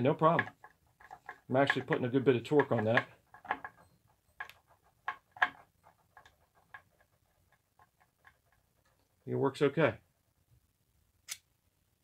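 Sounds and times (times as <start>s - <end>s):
screwdriver turning screw in wood: 0.0s - 8.6s.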